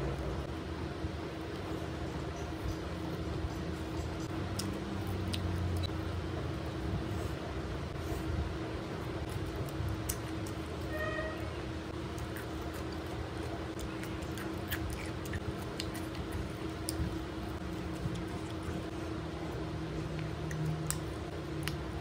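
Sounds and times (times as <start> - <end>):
steady low hum: 0.0 - 22.0
chewing and mouth clicks: 3.6 - 6.0, 9.2 - 10.9, 11.9 - 19.2, 19.9 - 22.0
high-pitched squeak: 10.9 - 11.6.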